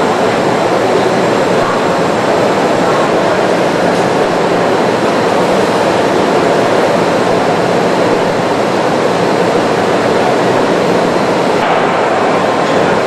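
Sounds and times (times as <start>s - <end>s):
industrial rushing hum: 0.0s - 13.0s.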